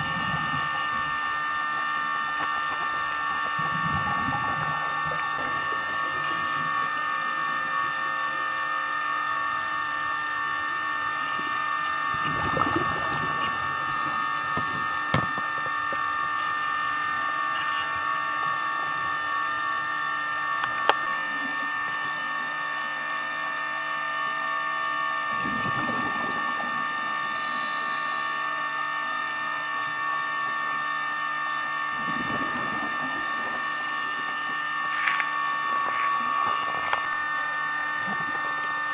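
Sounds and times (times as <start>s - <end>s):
camcorder electrical whine underwater: 0.0s - 38.9s
diver exhalation bubbles: 3.3s - 6.8s, 12.1s - 15.4s, 25.3s - 27.4s, 31.9s - 37.1s, 37.9s - 38.8s.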